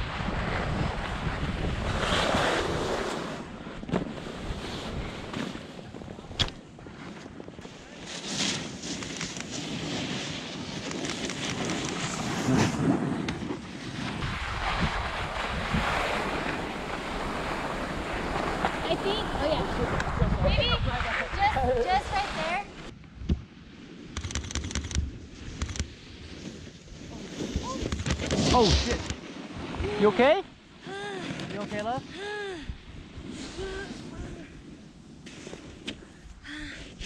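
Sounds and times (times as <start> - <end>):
wind buffeting microphone: 0.0 - 6.5, 14.1 - 23.4
skis scraping over snow: 0.0 - 22.9, 25.3 - 30.4, 33.0 - 36.2
sharp click: 24.2 - 25.9.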